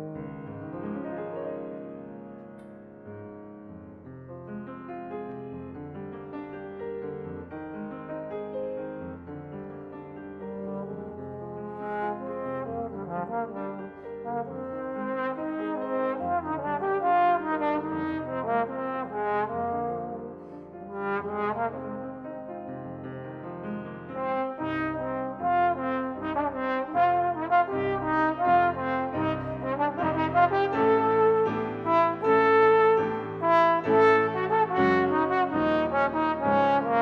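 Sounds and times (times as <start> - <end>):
piano accompaniment: 0.0 - 37.0
trombone melody: 10.4 - 22.8, 24.1 - 37.0.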